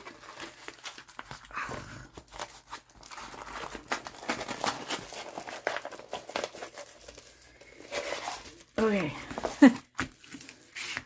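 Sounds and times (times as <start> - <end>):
packaging crinkling: 0.0 - 11.0.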